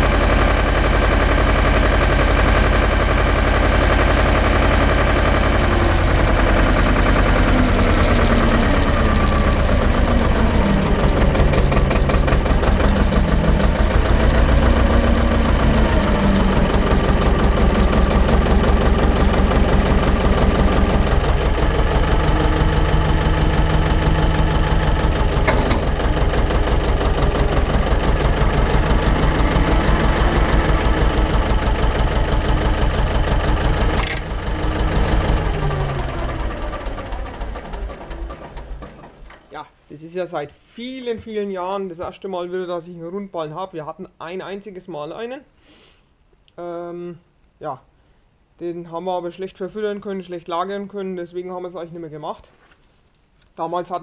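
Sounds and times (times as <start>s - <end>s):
diesel engine chugging: 0.0s - 39.7s.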